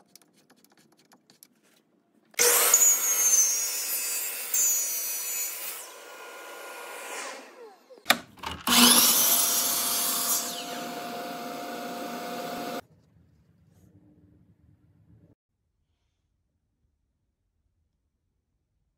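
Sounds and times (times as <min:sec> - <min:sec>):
miter saw motor whine: 0:08.7 - 0:12.8.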